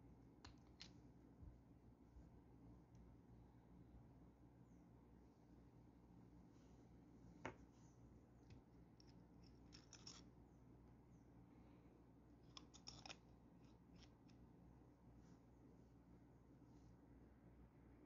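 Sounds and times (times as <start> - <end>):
pen parts clicking and tapping: 8.5 - 10.2, 12.5 - 14.2.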